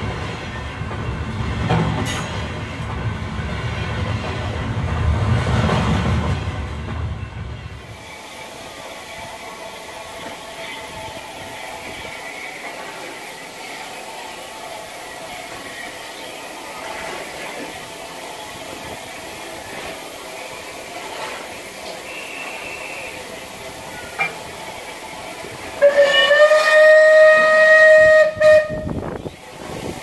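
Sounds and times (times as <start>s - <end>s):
steam locomotive hissing: 0.0s - 30.0s
steam whistle blast: 22.0s - 23.3s, 25.8s - 29.1s.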